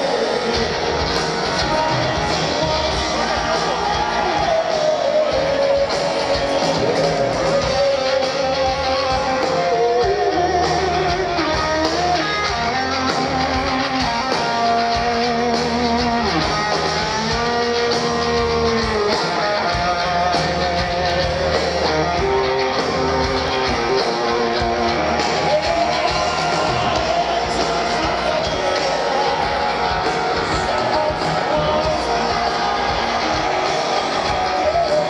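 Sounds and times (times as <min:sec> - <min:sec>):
bass: 0:00.0 - 0:35.0
drums: 0:00.0 - 0:35.0
electric guitar lead: 0:00.0 - 0:35.0.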